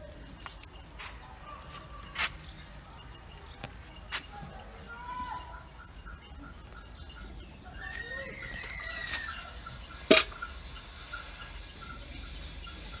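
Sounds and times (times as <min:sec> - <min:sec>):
bird calling: 0:00.0 - 0:13.0.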